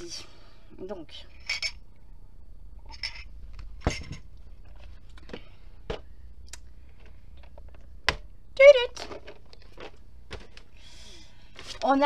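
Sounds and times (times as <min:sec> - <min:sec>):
low steady hum: 0:00.0 - 0:12.0
hand tapping and rustling plastic: 0:03.5 - 0:10.7.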